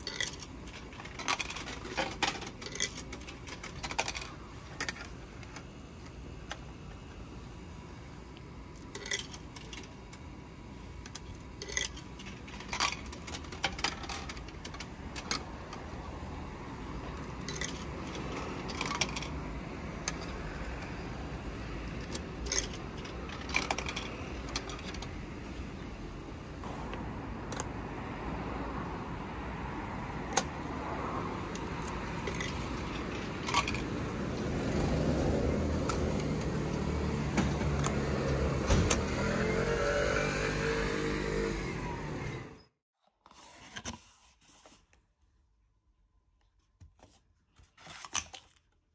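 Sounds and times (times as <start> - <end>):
coins clinking into vending machine: 0.0 - 5.1, 8.8 - 10.0, 11.0 - 15.8, 17.2 - 21.0, 21.9 - 25.2, 31.5 - 34.1
passing car: 26.6 - 42.6.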